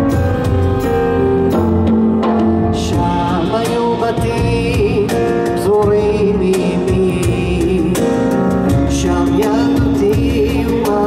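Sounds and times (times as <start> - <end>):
double bass: 0.0 - 11.0
stage piano: 0.0 - 11.0
person singing: 2.2 - 11.0.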